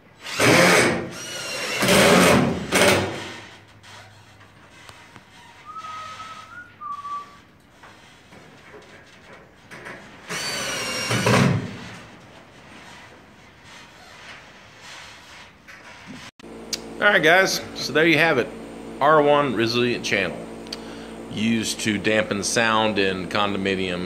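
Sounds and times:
impact driver driving screws: 0.2 - 3.4, 10.2 - 11.8
faint brief whistle: 5.6 - 7.4.

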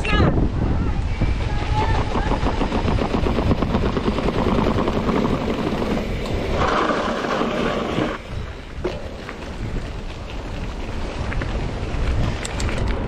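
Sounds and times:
mountain bike rattling over trail: 1.1 - 13.0.

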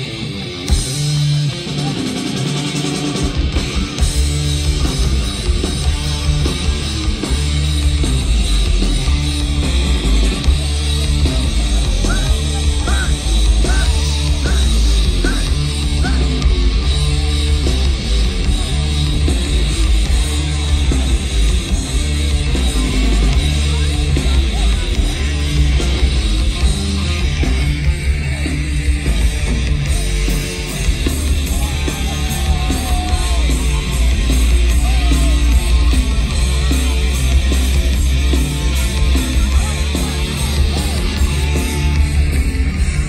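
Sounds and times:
live rock band playing: 0.0 - 43.0.

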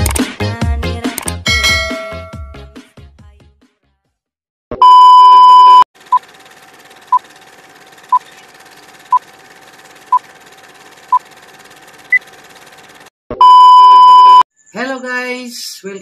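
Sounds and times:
short beeps: 4.8 - 5.8, 13.4 - 14.4.

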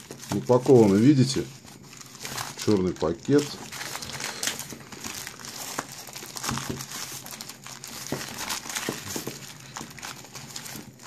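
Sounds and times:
plastic mailer bag crinkling: 0.0 - 11.0.

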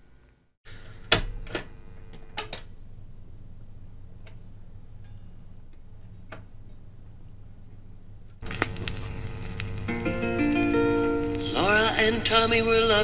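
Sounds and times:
turntable humming: 8.4 - 13.0.

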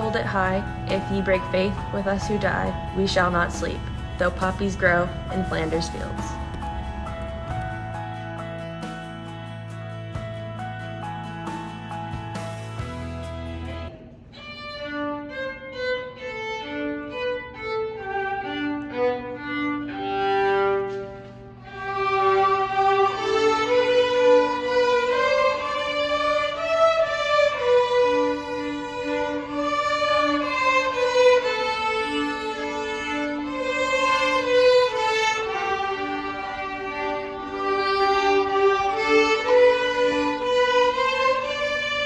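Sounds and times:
violin melody: 0.0 - 42.0.

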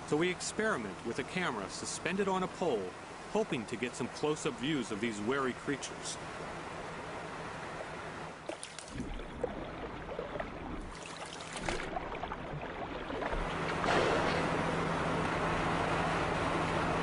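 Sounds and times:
low steady hum: 0.0 - 17.0
water splashing against boat: 7.6 - 17.0.

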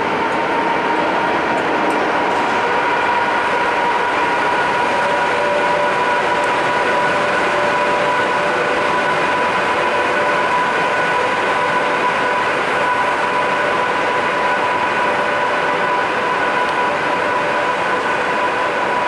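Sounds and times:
constant rushing noise: 0.0 - 19.0
electric locomotive whine: 0.0 - 19.0.

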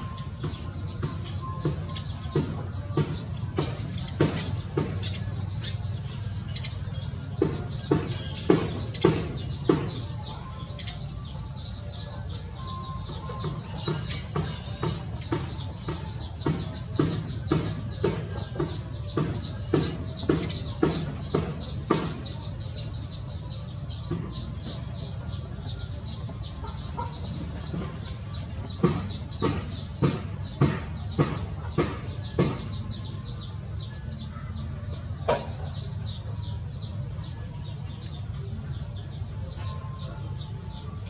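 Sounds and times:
small birds chirping: 0.0 - 41.0
sharp knocks: 27.2 - 33.2.

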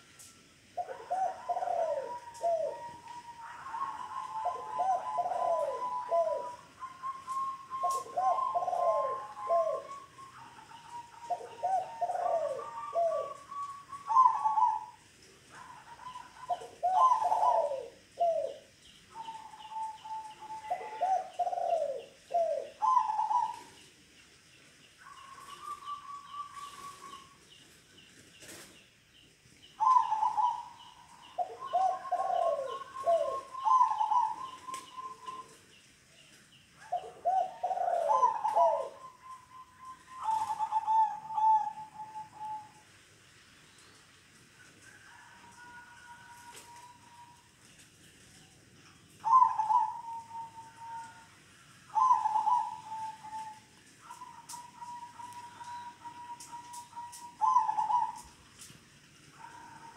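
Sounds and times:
doves cooing: 0.0 - 24.2, 24.8 - 28.8, 29.6 - 43.0, 44.6 - 59.9
faint high chirping: 29.6 - 44.1.

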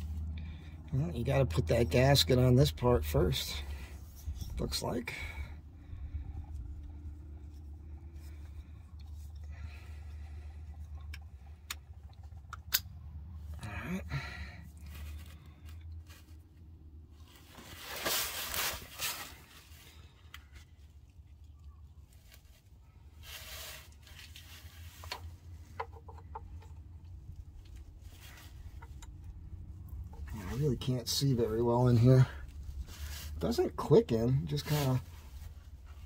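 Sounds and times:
low steady hum: 0.0 - 36.0
rustling: 14.8 - 30.7, 32.2 - 33.5.

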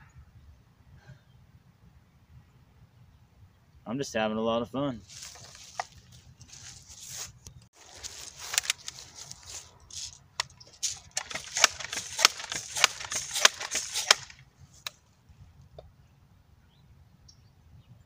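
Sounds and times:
air rifle pump hissing and clicking: 8.5 - 15.0.

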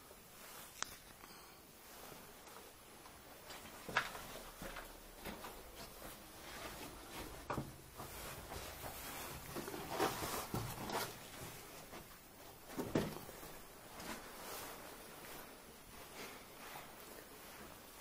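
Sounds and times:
knocks and scrapes on concrete walls: 3.6 - 14.2.

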